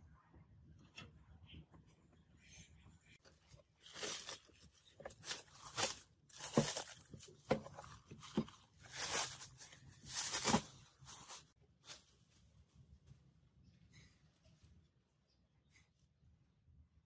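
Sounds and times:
plastic wrap rustling: 0:03.3 - 0:12.4.

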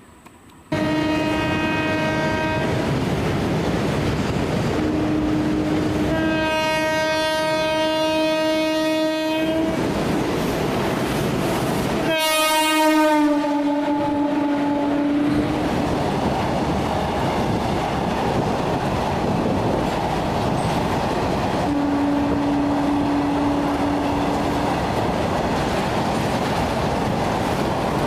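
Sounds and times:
passing train rumble: 0:00.0 - 0:28.0
locomotive horn blasts: 0:00.7 - 0:02.8, 0:04.8 - 0:09.8, 0:12.0 - 0:15.6, 0:21.7 - 0:24.5.

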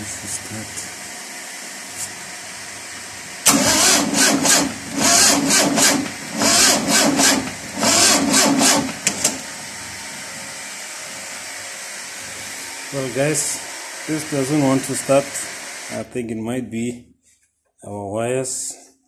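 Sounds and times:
engine cranking without firing: 0:03.4 - 0:09.4.

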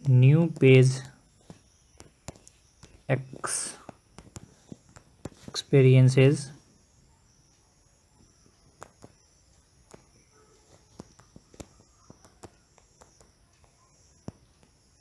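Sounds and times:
low steady hiss: 0:00.0 - 0:15.0
fingertip taps on phone screen: 0:01.4 - 0:03.0, 0:03.8 - 0:05.6, 0:08.8 - 0:09.2, 0:10.9 - 0:14.8.

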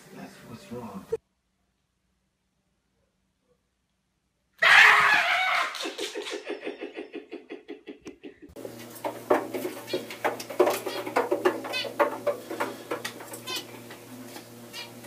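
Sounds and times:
person laughing rapidly: 0:05.0 - 0:08.6.

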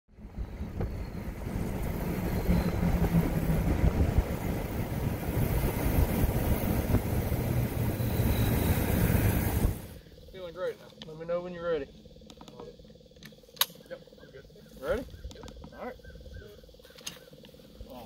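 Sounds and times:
engine running low rumble: 0:00.1 - 0:13.2.

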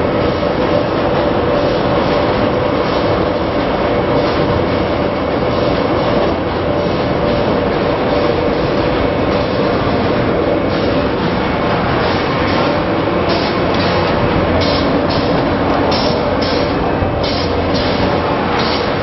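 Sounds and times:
constant machine hum: 0:00.0 - 0:19.0
factory machinery running: 0:00.0 - 0:19.0.

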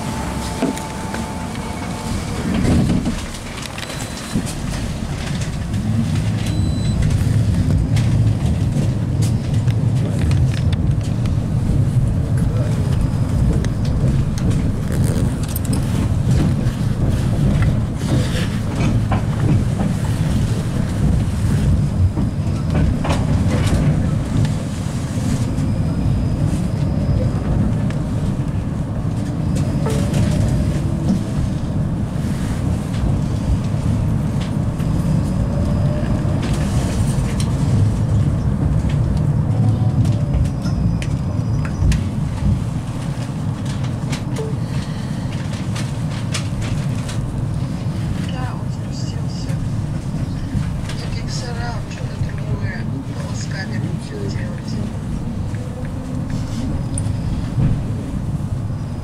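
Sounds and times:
faint whining tones: 0:00.0 - 0:04.7
tram wheels rumbling on rails: 0:00.0 - 0:59.0.

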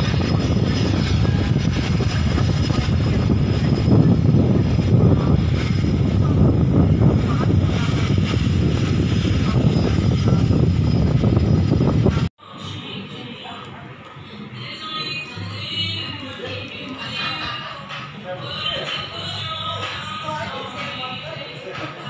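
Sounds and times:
aircraft engines rumbling: 0:00.0 - 0:22.0.

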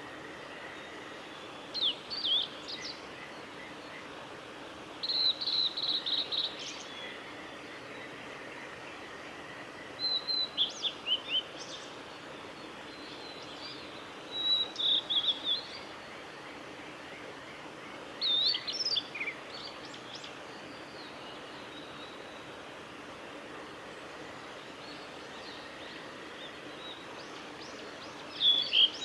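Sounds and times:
steady background hiss: 0:00.0 - 0:29.0
bird singing whistled notes: 0:01.7 - 0:03.0, 0:05.0 - 0:07.1, 0:13.2 - 0:15.8, 0:18.2 - 0:20.3, 0:28.2 - 0:29.0.

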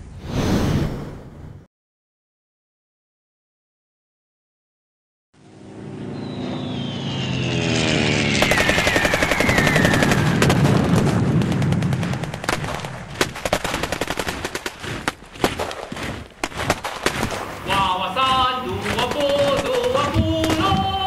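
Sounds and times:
firework whistle falling: 0:06.1 - 0:10.4
firework crackling bangs: 0:08.4 - 0:21.0.

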